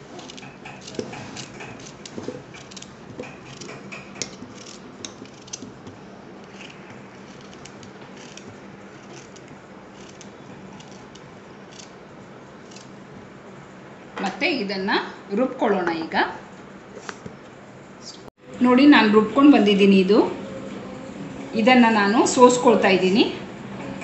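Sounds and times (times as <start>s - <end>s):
knife cutting cucumber: 0.1s - 12.0s.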